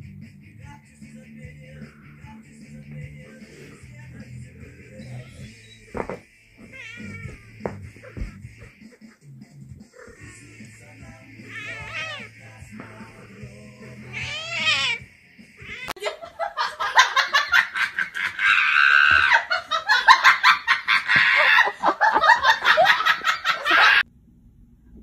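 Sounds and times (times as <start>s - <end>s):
cat meowing: 5.0s - 5.8s, 6.6s - 8.4s, 11.4s - 12.3s, 14.0s - 15.0s, 15.6s - 16.0s
person laughing hard: 15.8s - 24.0s.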